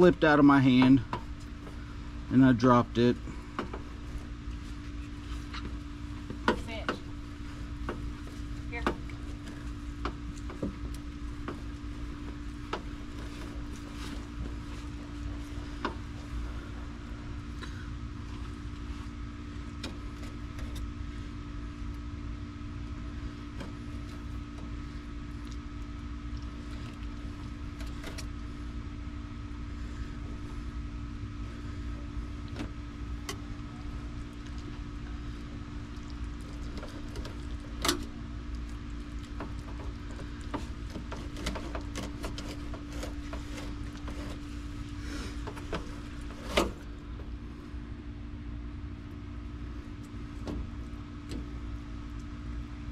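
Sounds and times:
machine hum and low rumble: 0.0 - 52.9.

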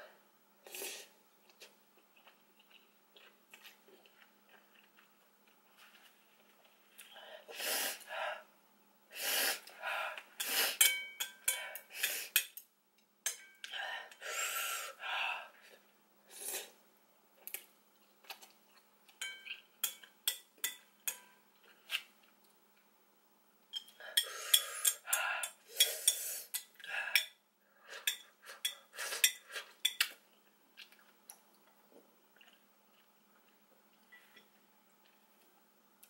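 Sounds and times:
chopsticks clinking on ceramic bowl: 19.2 - 21.4.

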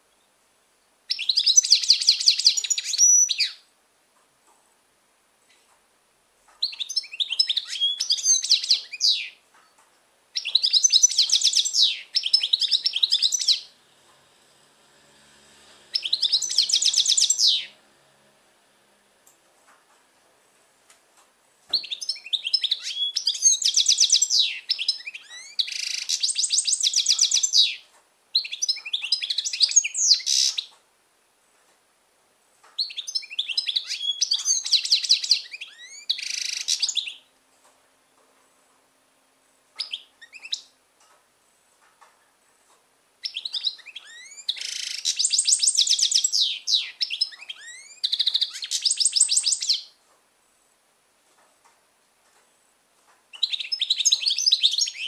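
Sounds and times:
finch singing: 1.1 - 3.7, 6.5 - 13.8, 15.8 - 17.8, 21.7 - 30.8, 32.8 - 37.3, 39.8 - 40.8, 43.2 - 50.0, 53.3 - 55.0.

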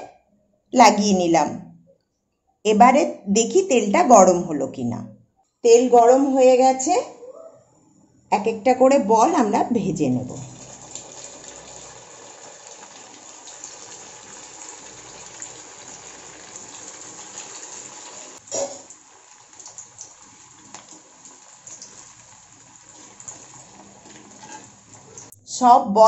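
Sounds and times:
noodle balls deep-frying in oil: 9.9 - 25.3.

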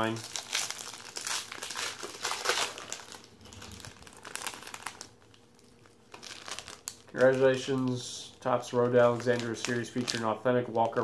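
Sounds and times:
foil wrappers crinkling: 0.0 - 11.0.

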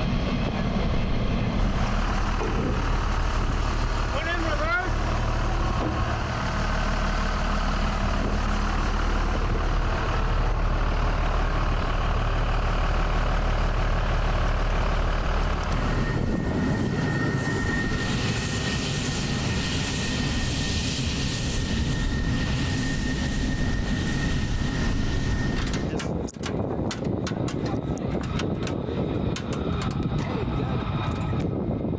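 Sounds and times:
diesel tractor idling: 0.0 - 16.8
jet engine whine and hiss: 0.0 - 31.9.

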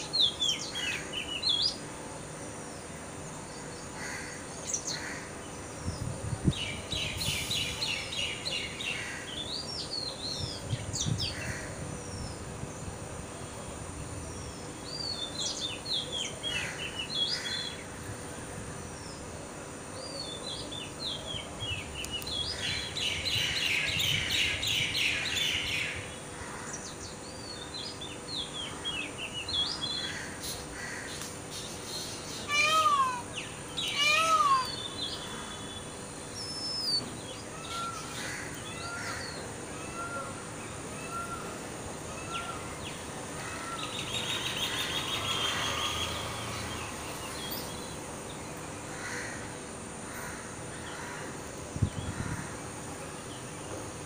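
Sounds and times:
birds chirping and calling: 20.0 - 49.4.

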